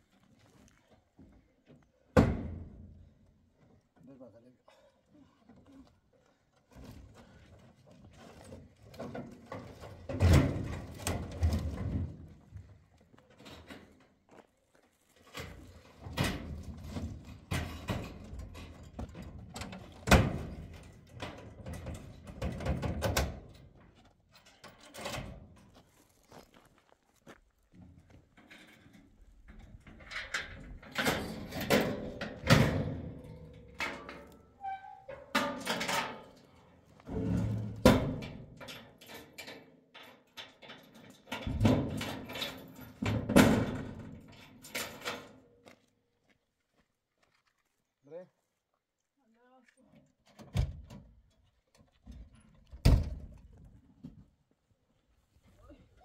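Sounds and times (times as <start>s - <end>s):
knocks and clatter: 15.3s - 23.7s, 37.1s - 45.4s
knocks and clatters: 15.3s - 25.4s.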